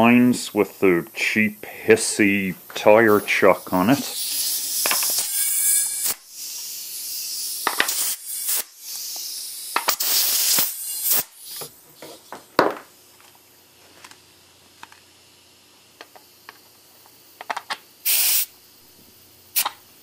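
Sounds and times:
compressed air hissing: 0.0 - 12.3, 18.0 - 18.6, 19.5 - 19.8.

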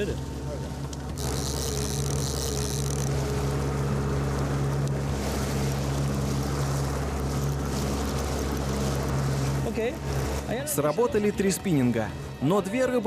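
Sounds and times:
motorboat engine running: 0.0 - 13.0
wind and water hiss: 0.0 - 13.0.

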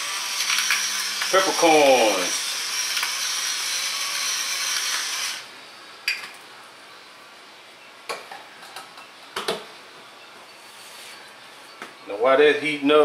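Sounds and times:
pepper mill grinding: 0.0 - 5.3.

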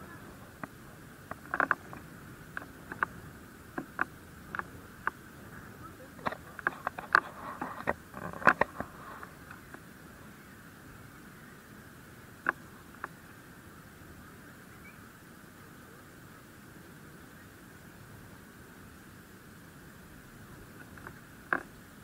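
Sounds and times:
faint steady hiss: 0.0 - 22.0
light clicks and taps: 0.6 - 3.2, 6.2 - 9.8.

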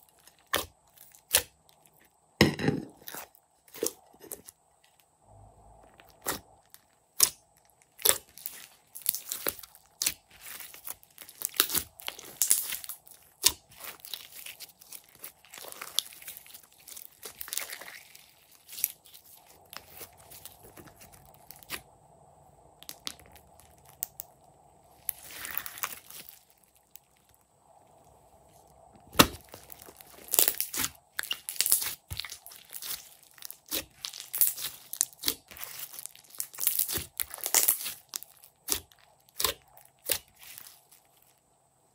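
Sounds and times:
slime squeezed with sticky pops: 7.2 - 21.8, 29.1 - 40.9.

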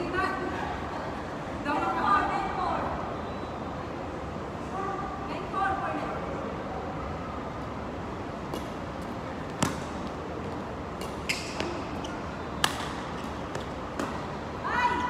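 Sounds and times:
rackets hitting shuttlecock: 9.5 - 10.1, 10.9 - 14.4.

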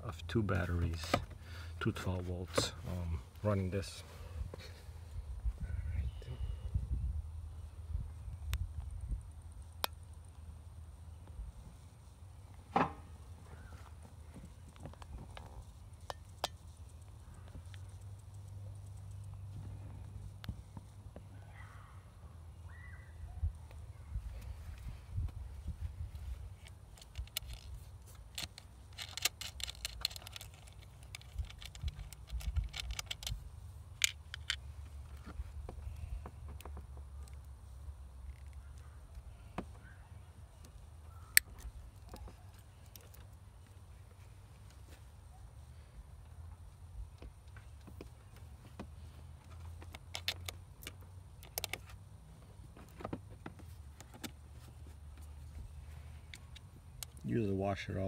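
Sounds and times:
low steady rumble: 0.0 - 52.8
small metallic clicks and clinks: 26.6 - 33.4, 49.4 - 52.0.

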